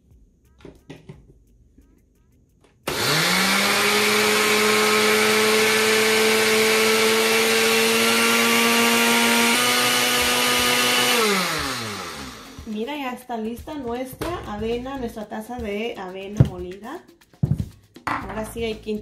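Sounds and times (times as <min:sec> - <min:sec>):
blender grinding oats: 0:02.9 - 0:12.7.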